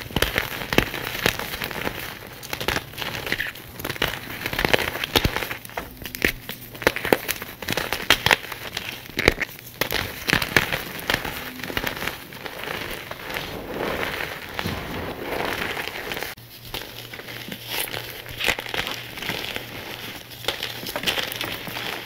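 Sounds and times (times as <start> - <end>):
powder rubbed between palms: 6.2 - 22.0.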